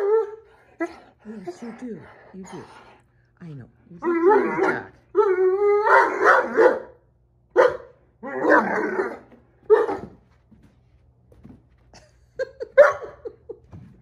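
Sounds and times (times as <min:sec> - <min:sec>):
puppy barking: 0:05.8 - 0:07.0, 0:07.6 - 0:10.2, 0:12.8 - 0:13.2.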